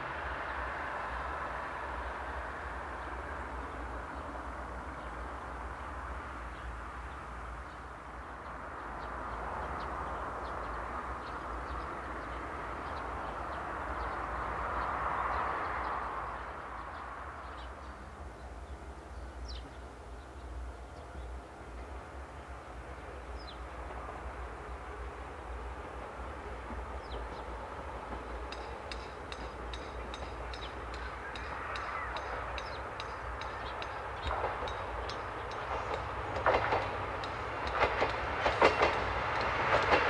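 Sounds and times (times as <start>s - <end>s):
distant train running: 0.0s - 40.0s
small birds chirping: 28.4s - 37.4s
long bird call: 30.4s - 34.3s.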